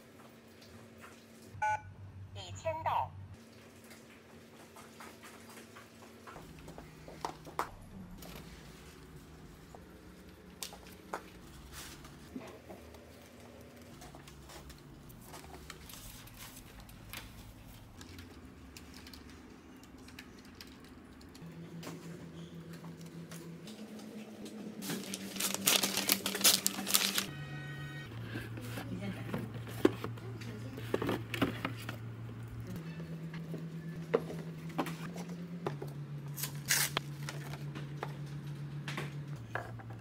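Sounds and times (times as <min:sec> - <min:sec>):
gift wrapping crinkling: 0:24.8 - 0:27.3.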